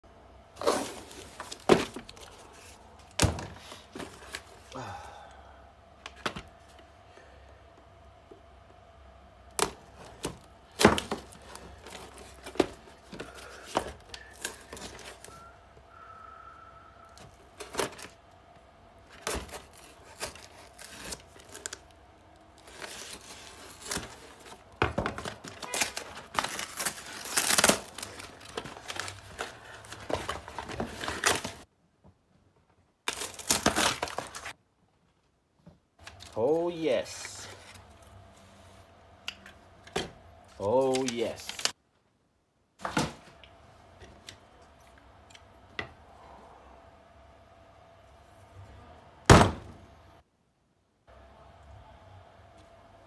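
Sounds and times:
cardboard flaps tearing and rustling: 0.6s - 4.6s, 9.6s - 15.3s, 19.1s - 21.9s, 22.6s - 31.7s, 33.1s - 34.6s, 40.8s - 41.7s.

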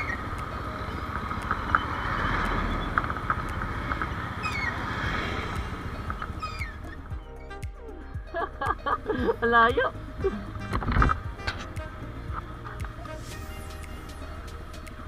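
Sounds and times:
motorcycle engine drone: 0.0s - 9.2s.

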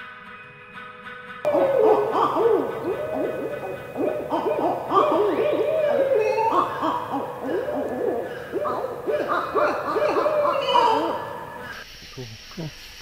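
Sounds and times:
owls hooting in chorus: 1.5s - 11.8s.

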